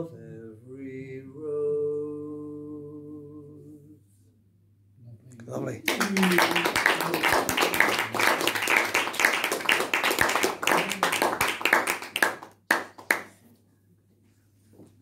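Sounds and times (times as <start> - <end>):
audience clapping: 5.8 - 13.4.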